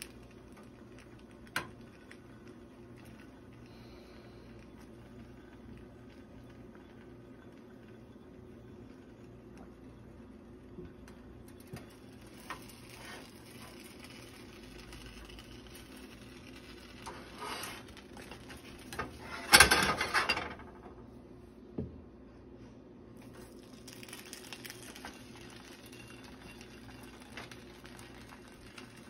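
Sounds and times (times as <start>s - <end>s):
plastic spatula scraping a pan: 12.5s - 14.1s, 17.0s - 20.2s.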